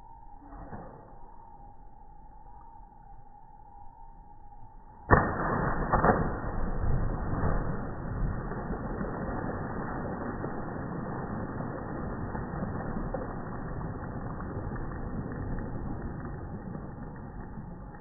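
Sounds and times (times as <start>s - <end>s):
splash into pool: 5.1s - 18.0s.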